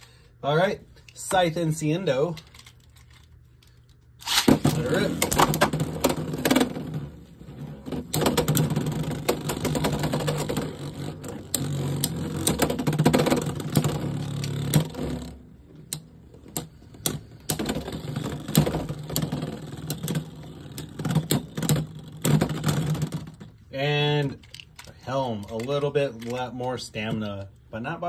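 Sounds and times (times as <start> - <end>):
spinning tops clashing clicks: 4.2 - 5.7
spinning tops whirring: 4.2 - 23.4.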